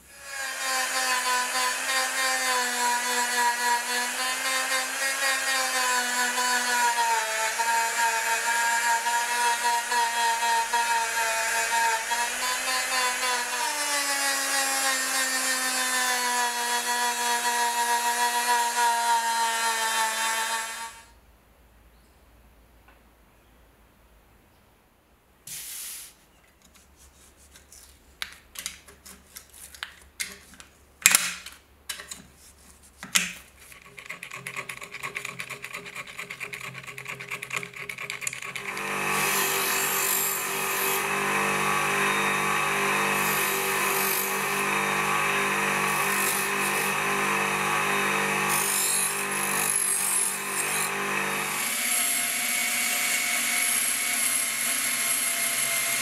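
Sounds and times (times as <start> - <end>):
drill spinning wire brush: 0.0 - 21.0, 33.6 - 56.0
bench polishing motor running: 38.2 - 56.0.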